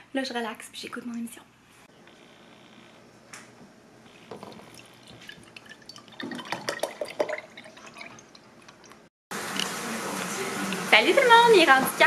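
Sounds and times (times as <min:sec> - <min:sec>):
liquid pouring into a glass: 0:04.3 - 0:08.9.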